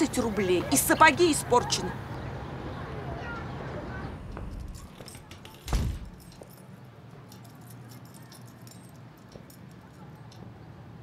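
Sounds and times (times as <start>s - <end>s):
heavy thump: 5.7s - 6.3s.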